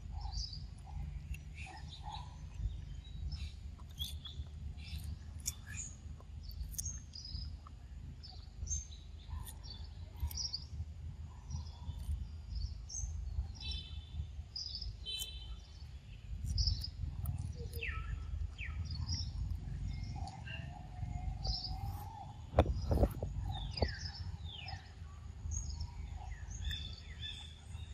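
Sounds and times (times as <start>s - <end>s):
birds chirping and calling: 0.0s - 27.9s
steady low rumble: 0.0s - 27.9s.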